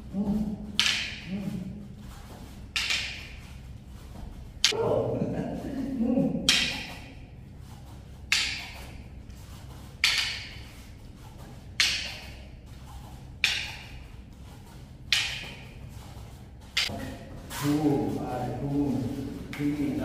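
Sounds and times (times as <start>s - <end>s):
wooden sticks clacking together: 0.7s - 1.3s, 2.7s - 3.4s, 6.5s - 7.2s, 8.3s - 9.0s, 10.0s - 10.8s, 11.7s - 12.4s, 13.4s - 14.0s, 15.1s - 15.8s.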